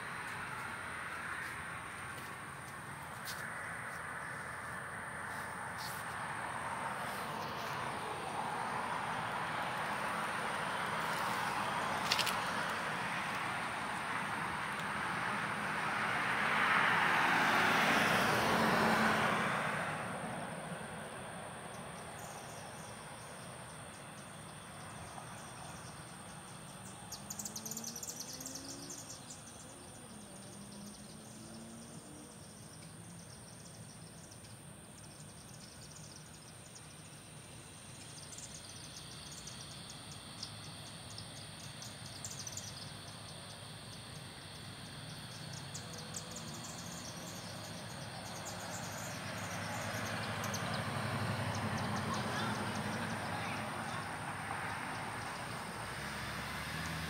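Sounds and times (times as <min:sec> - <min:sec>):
insects chirping in trills: 0:20.2 - 0:57.0.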